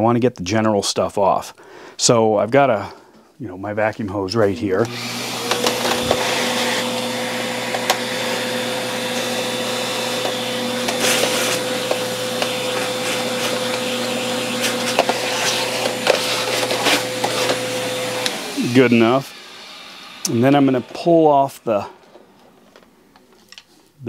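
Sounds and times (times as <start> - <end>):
vacuum cleaner running: 4.6 - 23.3.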